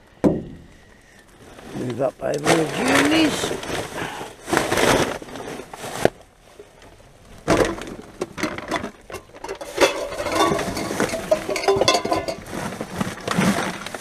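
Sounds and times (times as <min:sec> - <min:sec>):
plastic bags crinkling: 0:01.3 - 0:14.0
containers and bottles knocking: 0:07.5 - 0:12.6.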